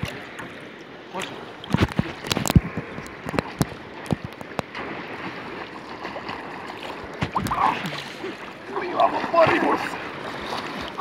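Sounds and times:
seawater splashing around swimmer: 0:04.6 - 0:11.0.

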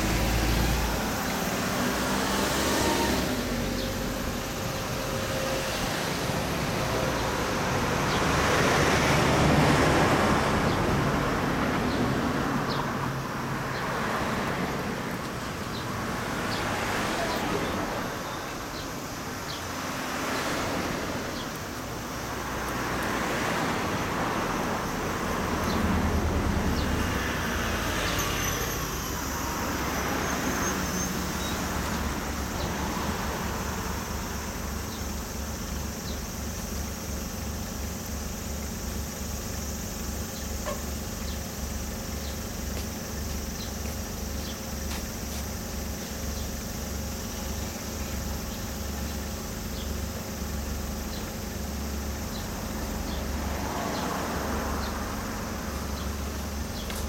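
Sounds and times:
motorcycle engine revving and idling: 0:21.2 - 0:57.0.

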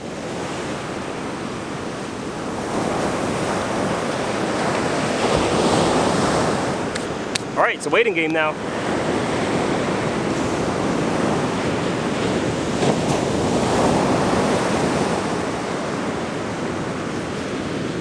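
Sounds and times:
ocean surf breaking: 0:00.0 - 0:18.0.

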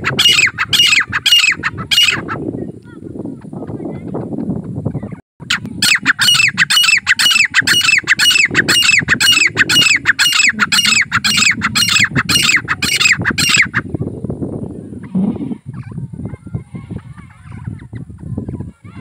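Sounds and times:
francolin calling: 0:00.0 - 0:02.4, 0:05.5 - 0:13.8.

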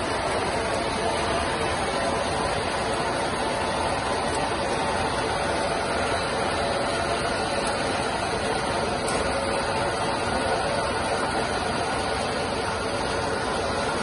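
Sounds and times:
spinning machine humming: 0:00.0 - 0:14.0.

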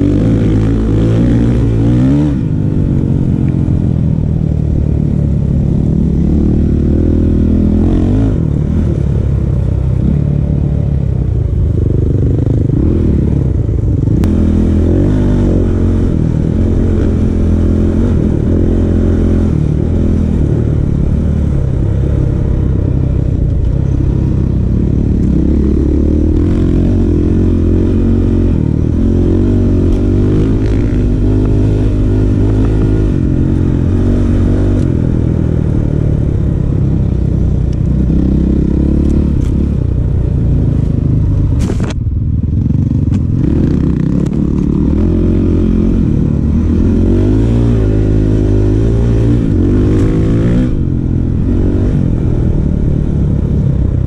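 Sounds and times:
dirt bike engine revving: 0:00.0 - 0:02.7, 0:12.1 - 0:22.8, 0:23.8 - 0:36.2, 0:42.6 - 0:53.2.

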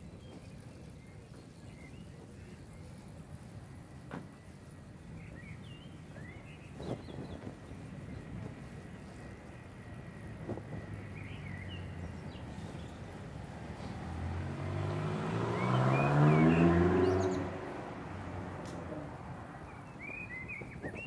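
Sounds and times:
birds chirping: 0:00.0 - 0:21.0
road noise: 0:00.0 - 0:21.0
car accelerating past: 0:13.6 - 0:19.2.

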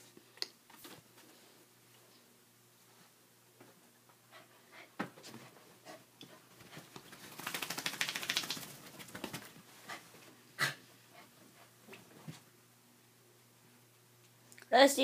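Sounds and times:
rapid clicking and scratching: 0:07.0 - 0:09.5.

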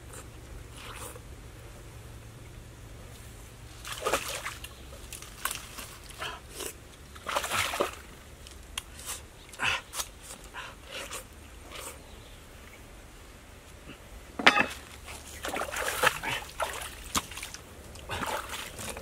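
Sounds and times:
splashing in shallow water: 0:03.7 - 0:08.2, 0:14.7 - 0:19.0.

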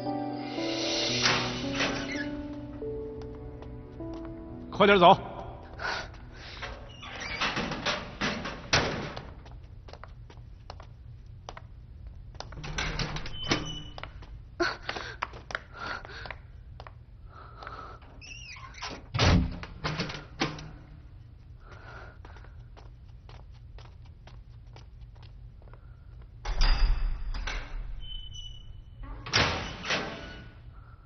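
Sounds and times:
footsteps on hard floor: 0:01.2 - 0:06.9, 0:08.2 - 0:12.7, 0:20.7 - 0:26.4.

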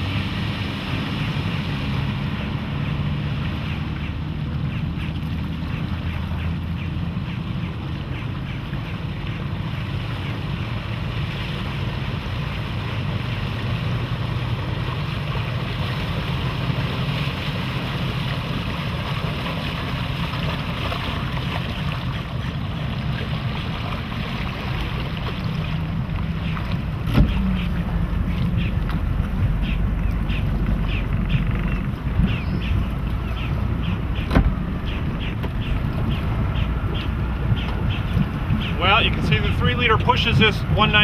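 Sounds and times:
boat engine drone: 0:00.0 - 0:41.0
water rushing along hull: 0:00.0 - 0:41.0
wind buffeting microphone: 0:12.3 - 0:41.0.

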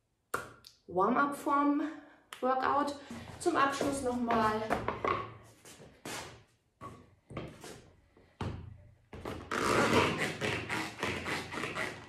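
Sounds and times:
rubber boots knocking on wood: 0:03.7 - 0:05.3.

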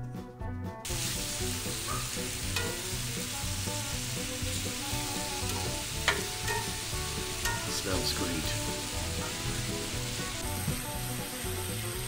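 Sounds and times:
steak sizzling in a skillet: 0:00.9 - 0:12.0
utensil stirring in skillet: 0:00.9 - 0:12.0.

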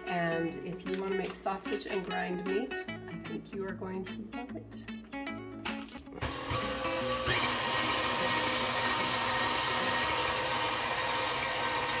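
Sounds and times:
mixer motor whining: 0:06.2 - 0:12.0.

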